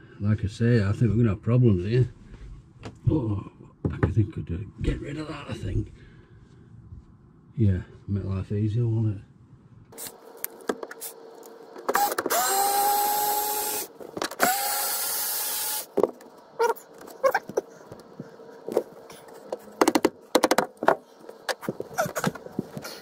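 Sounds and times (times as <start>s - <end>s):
cordless drill running: 11.9s - 15.9s.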